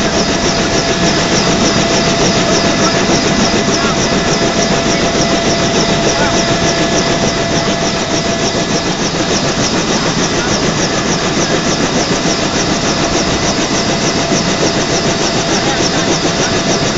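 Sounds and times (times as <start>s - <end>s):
helicopter engine and rotor: 0.0s - 16.9s.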